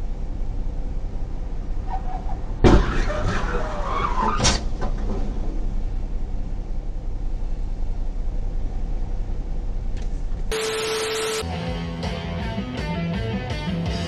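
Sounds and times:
car engine rumble: 0.0s - 14.0s
steady beep tone: 10.5s - 11.4s
tv static hiss: 10.5s - 11.4s.

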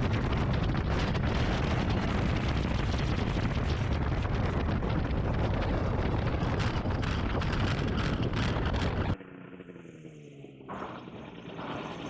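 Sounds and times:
wind buffeting microphone: 0.0s - 9.2s
plane engine and propeller: 0.0s - 12.0s.

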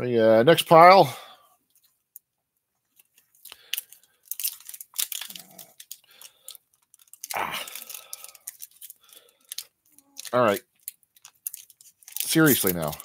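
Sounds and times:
foil wrapper crinkling and ripping: 3.0s - 13.0s.

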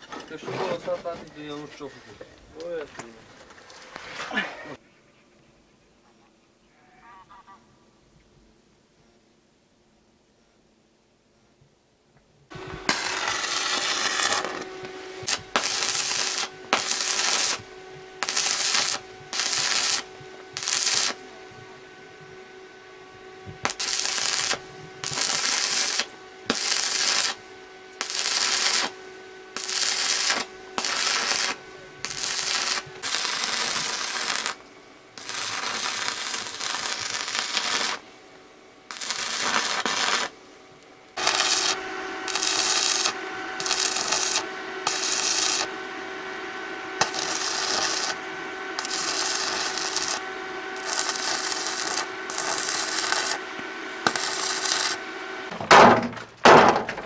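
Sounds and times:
welding arc crackling and sizzling: 12.5s - 38.1s, 38.9s - 40.4s, 41.1s - 55.6s.

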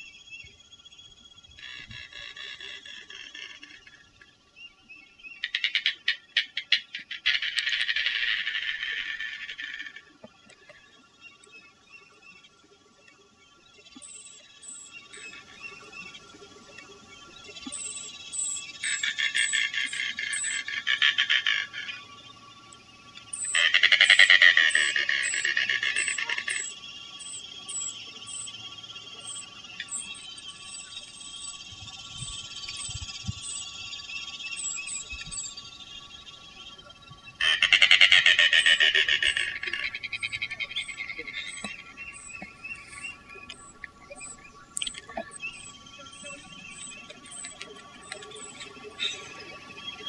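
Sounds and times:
bird rapid clicking rattling call: 5.4s - 10.7s, 17.6s - 22.0s, 23.1s - 28.5s, 37.4s - 49.2s
faint high chirps: 9.0s - 37.4s, 38.3s - 50.0s
bird rattling call: 23.3s - 28.5s.

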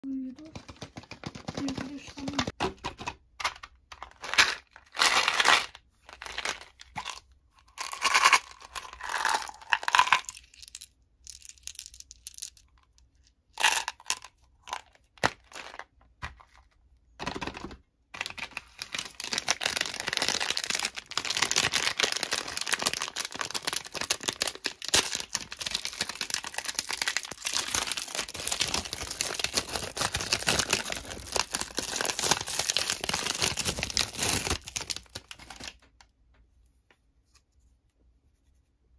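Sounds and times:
plastic containers handled: 0.2s - 7.2s, 13.6s - 36.0s
candy wrapper crinkling and tearing: 3.9s - 13.0s, 13.6s - 15.9s, 18.2s - 35.9s.

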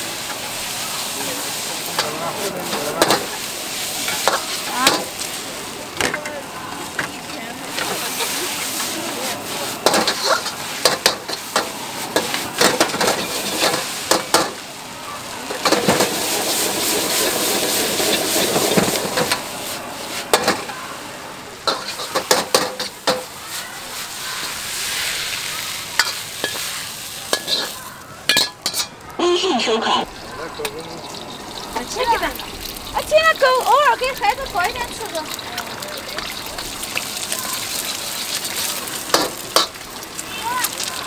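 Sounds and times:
noodles sizzling in a wok: 0.0s - 29.2s, 30.1s - 41.0s
metal ladle scraping wok: 0.2s - 5.4s, 7.7s - 14.6s, 15.5s - 20.7s, 21.6s - 33.6s
gas flame: 15.4s - 20.9s.

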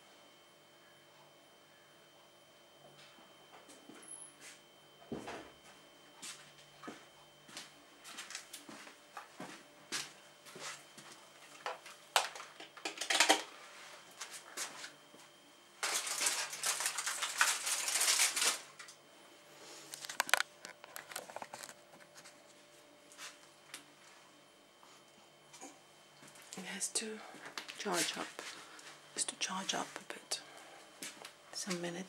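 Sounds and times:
aluminium foil crinkling: 11.5s - 13.5s, 15.8s - 19.0s, 19.9s - 22.4s, 27.5s - 30.2s.

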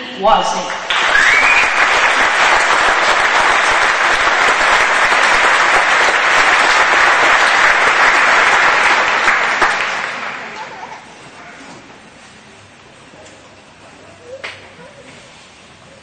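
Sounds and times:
large audience applauding: 0.6s - 11.0s.

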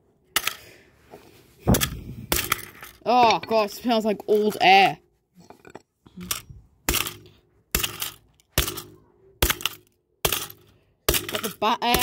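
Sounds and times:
plastic toy being struck: 6.2s - 12.0s.

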